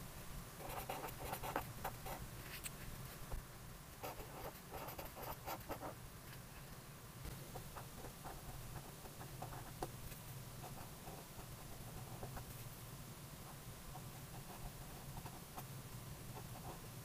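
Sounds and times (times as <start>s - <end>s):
marker scratching on paper: 0.6s - 2.7s, 4.0s - 6.0s.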